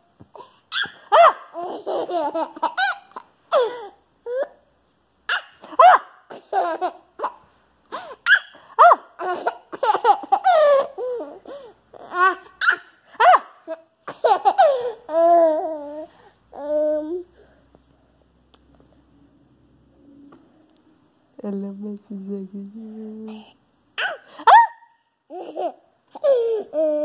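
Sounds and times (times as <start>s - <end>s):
baby laughing: 0.4s - 4.5s, 5.3s - 16.8s, 24.0s - 27.0s.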